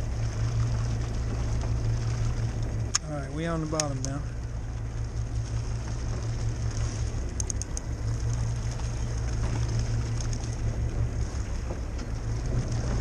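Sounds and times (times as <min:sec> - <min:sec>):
boat engine humming: 0:00.0 - 0:13.0
faint high clicks: 0:07.3 - 0:10.6.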